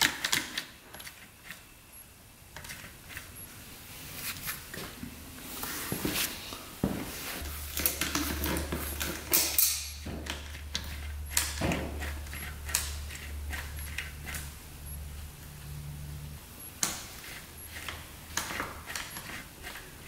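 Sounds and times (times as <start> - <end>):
steady low hum: 1.0 - 20.0
hand tools and metal parts clicking: 7.7 - 14.4.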